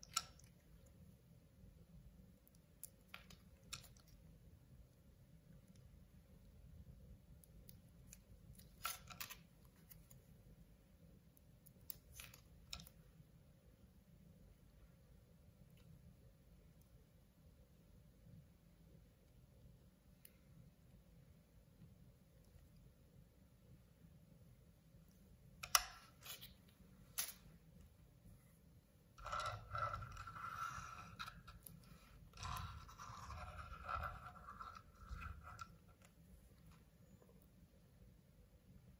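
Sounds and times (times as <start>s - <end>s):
toy car wheels on wood: 32.2s - 35.8s.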